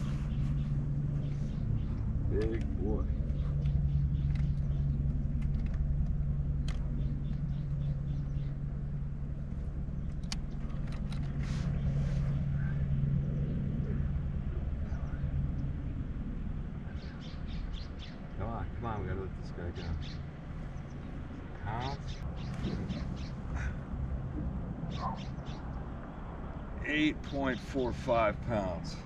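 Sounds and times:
low motor hum: 0.0 - 29.0.

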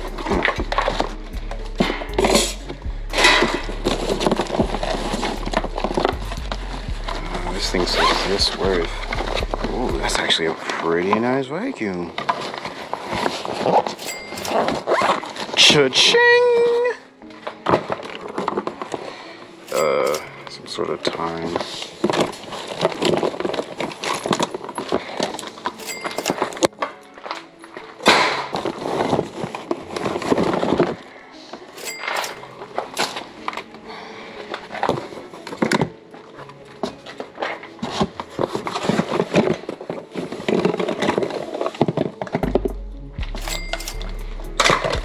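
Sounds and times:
backing beat with deep bass: 0.0 - 10.2, 42.4 - 45.0
rummaging through cardboard box: 0.0 - 16.5, 17.2 - 45.0
knocks and clunks of items: 12.0 - 15.8, 17.2 - 45.0.

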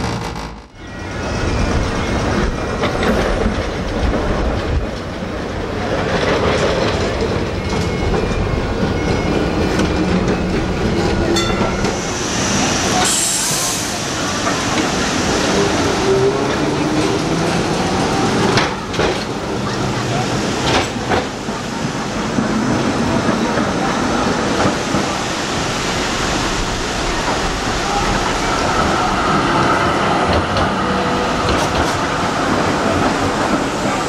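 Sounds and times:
tram wheels rumbling on rails: 0.0 - 34.0.

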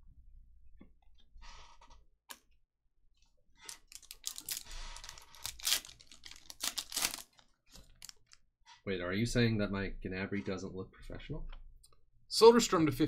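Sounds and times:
foil wrapper crinkling and tearing: 3.6 - 8.4.

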